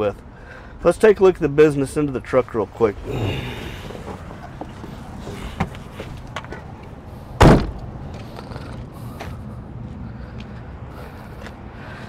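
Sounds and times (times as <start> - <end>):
truck door slamming: 2.9 - 6.7, 7.4 - 7.9.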